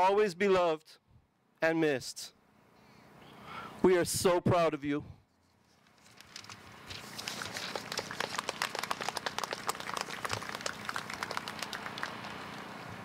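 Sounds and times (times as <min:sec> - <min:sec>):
audience applauding: 0:07.2 - 0:12.8.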